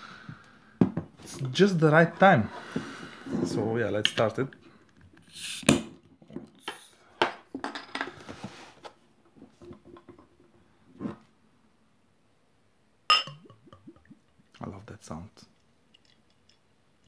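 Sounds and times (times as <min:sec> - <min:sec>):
bottle clinking against glass: 0:13.1 - 0:13.8
bottle click and rattling: 0:13.1 - 0:13.9
bottle knock: 0:13.1 - 0:13.9
beer glugging into glass: 0:13.1 - 0:14.3.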